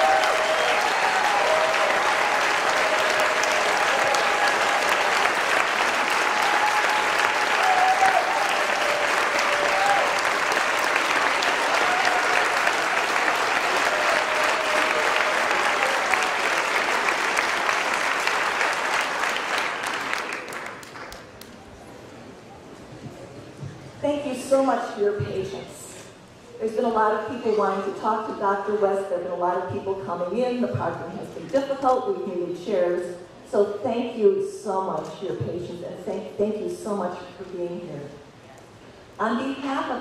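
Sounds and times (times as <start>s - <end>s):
large audience clapping: 0.0s - 21.8s.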